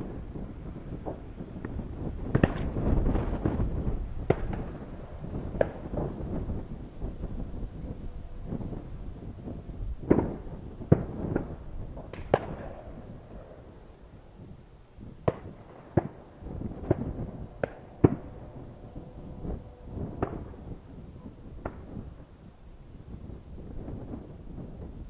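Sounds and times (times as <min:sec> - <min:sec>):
distant shotgun shots echoing: 0:10.1 - 0:13.7, 0:15.2 - 0:18.9, 0:20.2 - 0:20.6.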